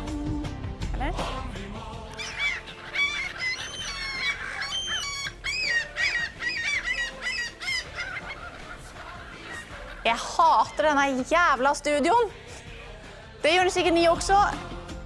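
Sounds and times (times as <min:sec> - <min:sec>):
high-pitched bird-like calls: 0:02.2 - 0:10.2.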